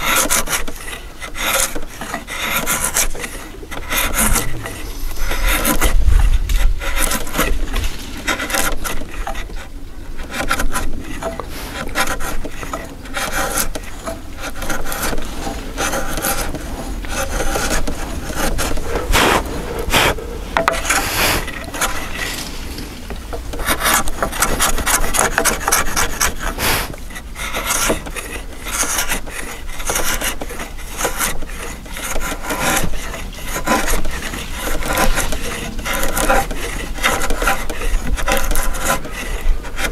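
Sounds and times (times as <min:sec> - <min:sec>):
chisel scraping through wood: 0:00.0 - 0:39.9.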